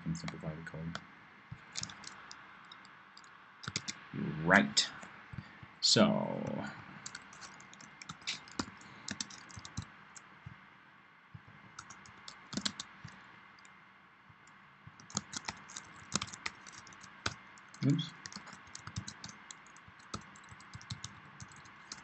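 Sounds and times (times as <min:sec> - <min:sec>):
keyboard keystroke clicks: 0:01.7 - 0:02.4.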